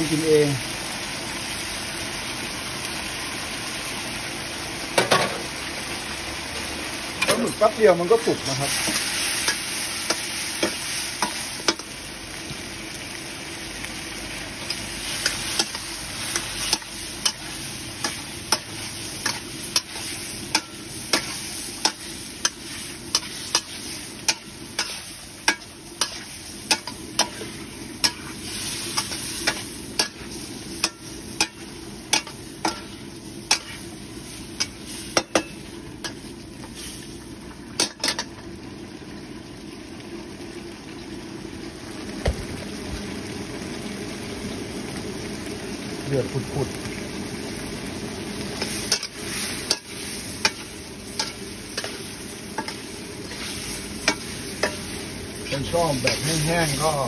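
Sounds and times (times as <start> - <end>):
squid sizzling in a wok: 0.0 - 57.0
metal spatula scraping a wok: 14.6 - 37.0, 48.5 - 57.0.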